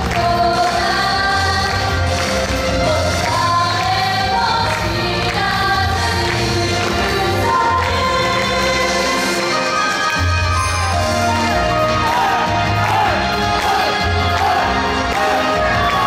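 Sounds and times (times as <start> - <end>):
women singing together: 0.0 - 2.4, 3.2 - 9.7
pop backing track with bass: 0.0 - 16.0.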